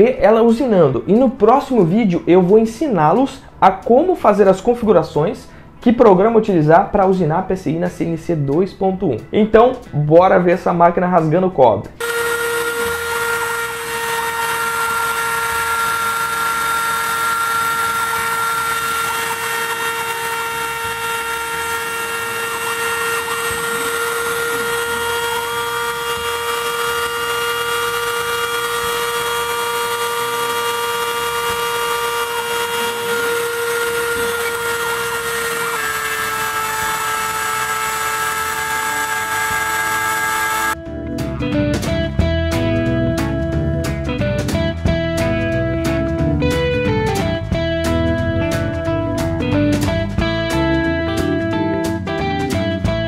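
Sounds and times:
music: 0.0 - 53.0
axis motors whining: 12.0 - 40.8
rotary tool spindle whining: 12.0 - 40.8.

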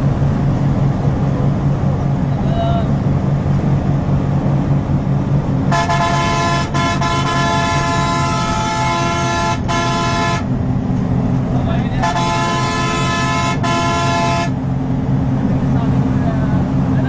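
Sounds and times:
bus diesel engine running: 0.0 - 17.0
multi-tone horn: 5.7 - 10.5, 12.0 - 14.6.

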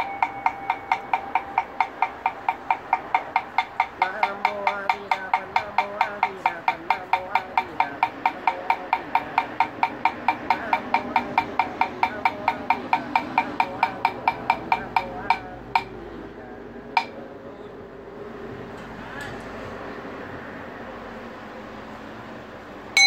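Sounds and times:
wooden fish hollow knocks: 0.0 - 15.9.

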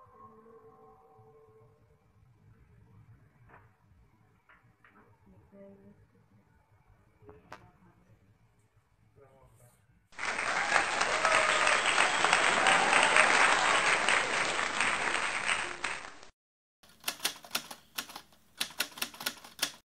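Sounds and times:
applause: 10.2 - 16.3
typewriter key clacks: 16.9 - 19.8.

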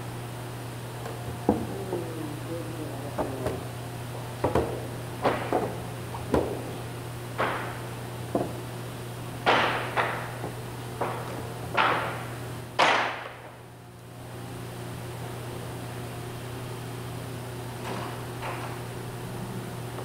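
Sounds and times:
steady low hum: 0.0 - 20.0
wooden boards knocking: 1.3 - 2.0, 3.1 - 3.7, 4.4 - 8.6, 9.4 - 13.5.

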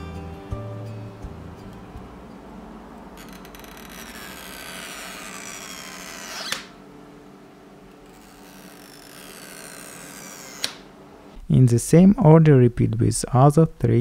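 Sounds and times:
adhesive strip squealing: 3.2 - 6.8, 8.0 - 10.8
adhesive strip snapping: 10.4 - 10.8.

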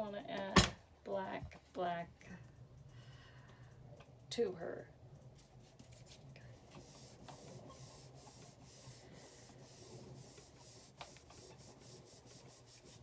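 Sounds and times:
pad rubbing over stamp: 5.9 - 13.0.

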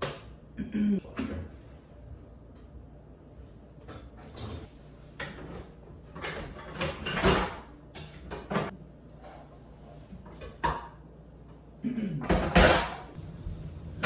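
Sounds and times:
dishwasher rack rattling: 6.1 - 7.6.

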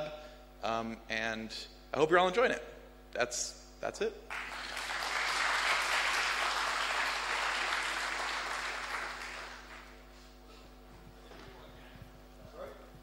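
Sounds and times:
audience applauding: 4.3 - 10.0.

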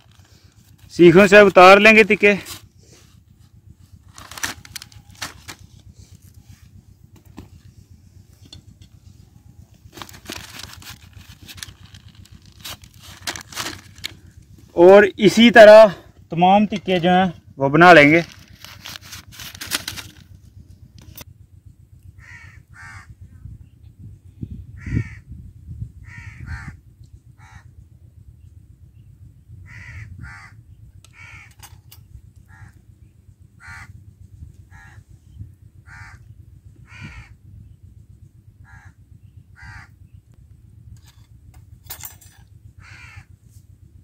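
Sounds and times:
wind rumble on microphone: 0.0 - 44.0
crows cawing: 22.2 - 23.2, 24.8 - 25.3, 26.0 - 26.8, 27.4 - 27.7, 29.6 - 32.9, 33.6 - 34.0, 34.7 - 35.1, 35.8 - 37.4, 38.6 - 40.0, 42.8 - 43.4.

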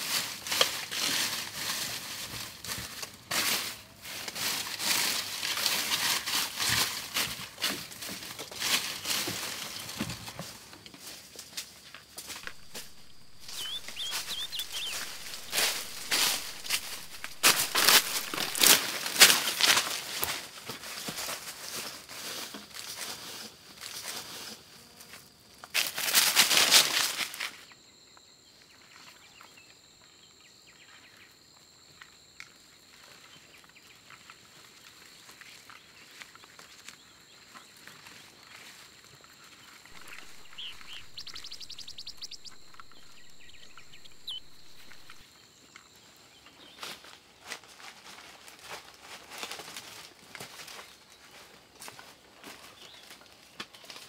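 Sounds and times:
footsteps crunching through leaves: 0.0 - 24.7, 25.6 - 27.7, 37.6 - 45.2, 46.7 - 54.0
bird chirps: 12.4 - 18.7, 39.9 - 45.2
rapid bird trill: 12.4 - 18.7, 39.9 - 45.2
steady high whine: 12.4 - 19.0, 39.9 - 45.2.

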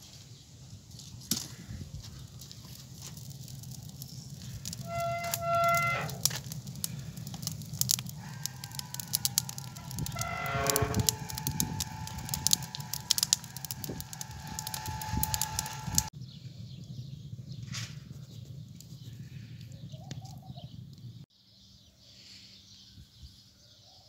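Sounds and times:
low steady rumble: 0.4 - 21.2
wood fire crackling and popping: 0.7 - 16.1.

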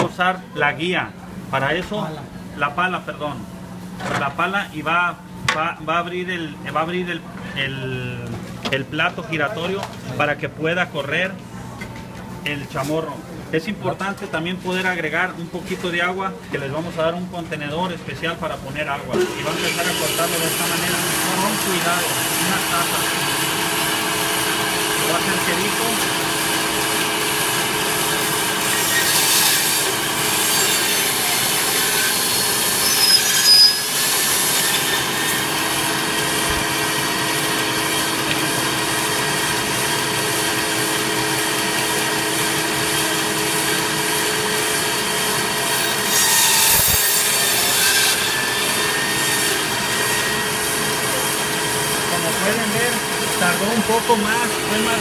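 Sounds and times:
band saw motor hum: 19.1 - 55.0
saw blade squeal: 28.1 - 35.5, 45.8 - 50.4
saw blade rasping through bone: 28.6 - 35.5, 45.9 - 50.3.

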